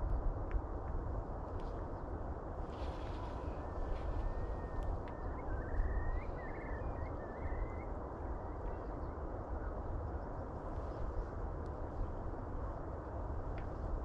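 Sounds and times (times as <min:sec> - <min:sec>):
wind buffeting rumble: 0:00.0 - 0:14.0
bird chirping: 0:04.3 - 0:09.2.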